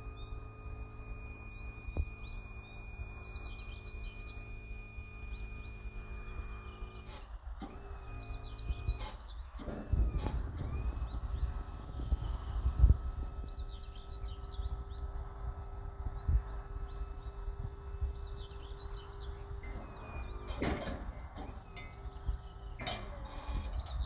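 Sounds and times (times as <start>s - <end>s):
birds chirping: 0.0s - 24.0s
hydraulic power unit humming: 0.0s - 24.0s
short noisy bursts: 0.0s - 24.0s
wind rumbling on microphone: 7.4s - 24.0s.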